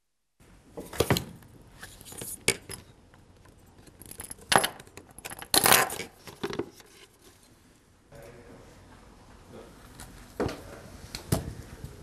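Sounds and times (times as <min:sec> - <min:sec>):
metal connectors clicking and clinking: 0:02.1 - 0:06.6.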